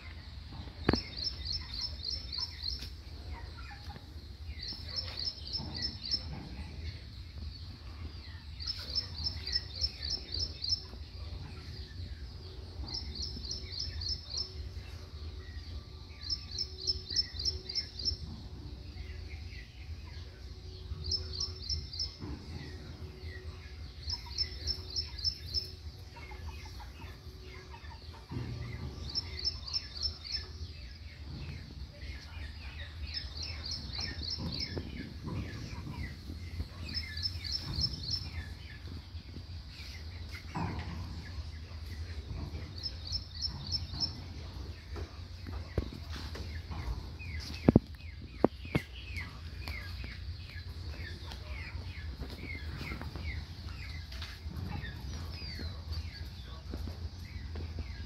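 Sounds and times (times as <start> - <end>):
chickens clucking: 0.0 - 58.0
bird chirping trill: 0.8 - 3.0, 4.3 - 7.8, 8.4 - 31.3, 32.0 - 45.4.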